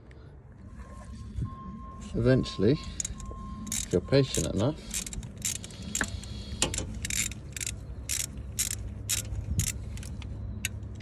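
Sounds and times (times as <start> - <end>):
low steady hum: 0.0 - 11.0
ratchet wrench clicking: 2.9 - 11.0.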